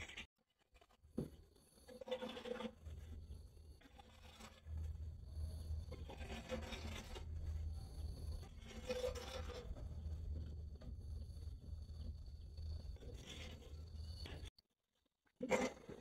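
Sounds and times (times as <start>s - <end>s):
low steady rumble: 4.6s - 14.5s.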